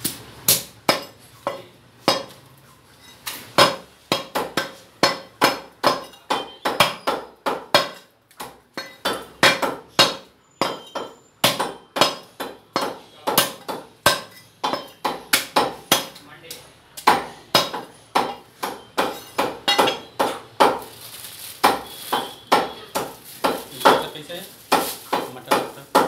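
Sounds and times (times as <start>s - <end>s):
cleaver chopping meat and bone: 0.5s - 2.4s, 3.5s - 20.9s, 21.6s - 24.1s, 24.7s - 26.0s.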